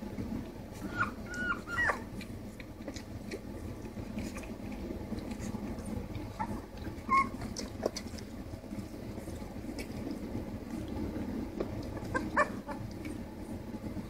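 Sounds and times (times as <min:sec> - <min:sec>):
puppies shuffling and suckling: 0:00.0 - 0:14.0
puppies whimpering: 0:00.7 - 0:02.3, 0:05.4 - 0:08.1, 0:11.8 - 0:13.1.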